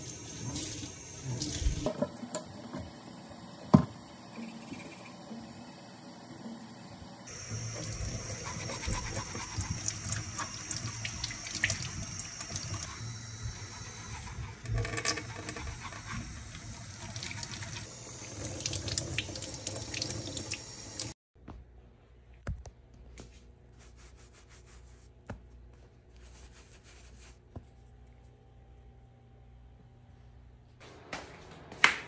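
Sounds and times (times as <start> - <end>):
faucet running into metal sink: 7.6 - 21.1.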